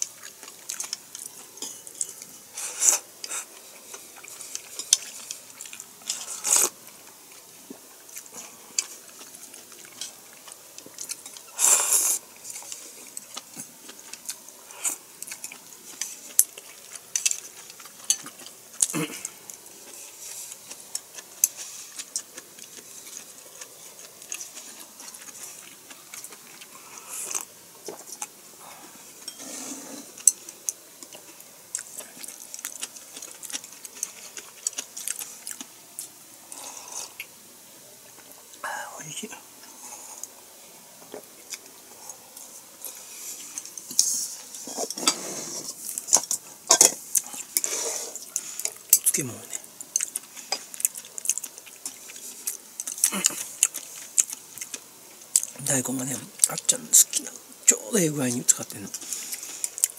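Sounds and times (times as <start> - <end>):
person chewing food: 0.0 - 37.4, 39.6 - 55.6, 58.9 - 59.9
slurping: 47.2 - 48.8.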